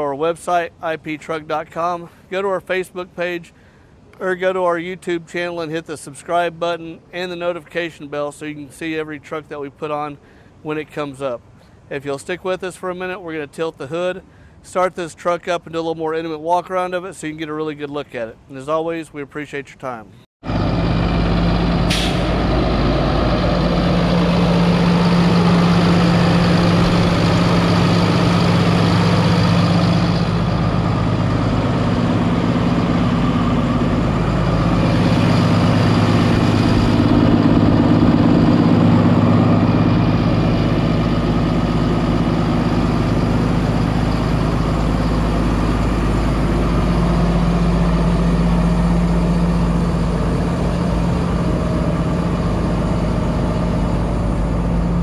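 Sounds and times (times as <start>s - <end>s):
diesel truck engine idling: 20.4s - 55.0s.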